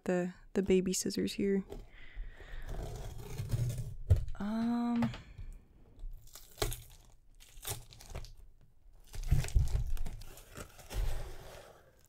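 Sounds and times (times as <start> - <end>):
cardboard tearing and crinkling: 6.2 - 12.0.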